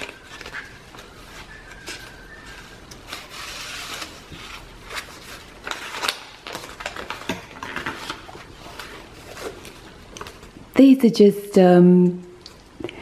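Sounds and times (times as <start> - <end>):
paper pages rustling and turning: 0.0 - 10.6.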